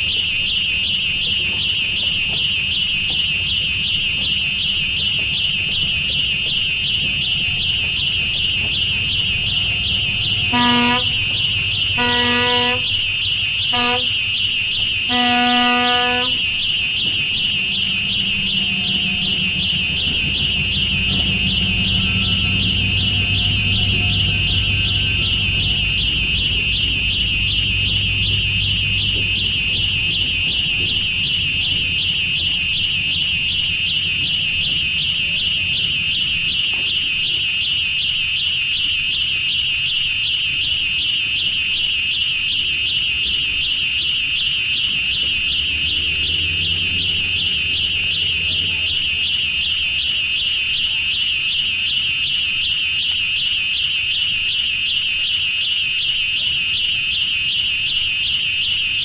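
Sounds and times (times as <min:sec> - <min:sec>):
low rumble: 0:06.3 - 0:13.7, 0:15.7 - 0:36.1
high-pitched warbling tone: 0:16.3 - 0:28.4.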